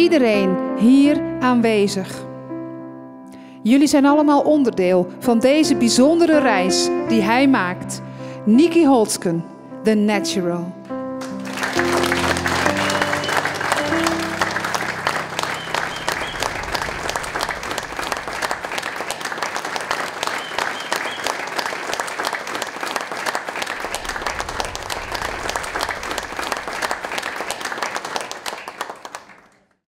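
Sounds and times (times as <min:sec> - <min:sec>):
crowd applauding: 0:11.2 - 0:29.8.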